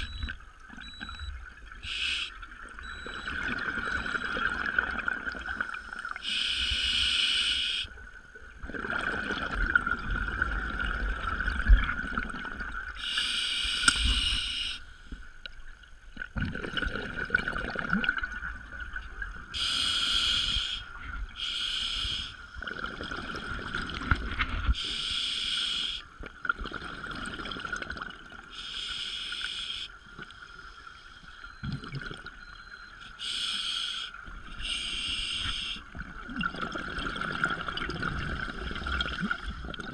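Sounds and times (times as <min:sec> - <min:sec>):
exhaled bubbles underwater: 0:00.0 - 0:06.2, 0:07.9 - 0:13.0, 0:16.2 - 0:19.7, 0:22.5 - 0:24.7, 0:26.2 - 0:28.6, 0:31.4 - 0:32.5, 0:35.8 - 0:39.9
diver breathing through regulator: 0:19.6 - 0:22.4, 0:33.2 - 0:35.8.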